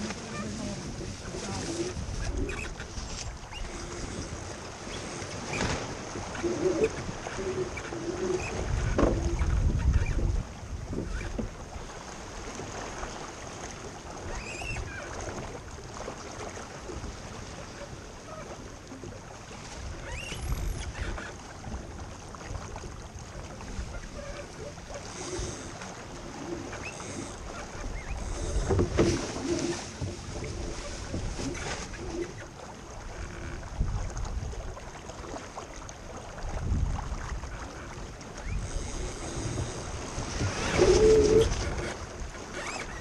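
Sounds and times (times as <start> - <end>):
wind buffeting microphone: 0.0 - 4.5, 6.0 - 11.7, 19.8 - 21.1, 36.4 - 43.0
water rushing along hull: 0.0 - 43.0
short squeaks: 2.2 - 2.8, 11.0 - 11.4, 14.3 - 15.1, 20.0 - 21.3, 26.7 - 29.9, 40.3 - 43.0.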